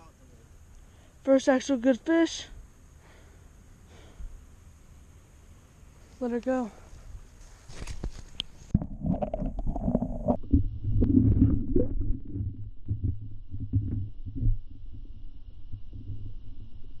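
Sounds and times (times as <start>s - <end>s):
muffled underwater sloshing: 8.7s - 16.8s
underwater knocks: 8.8s - 15.1s.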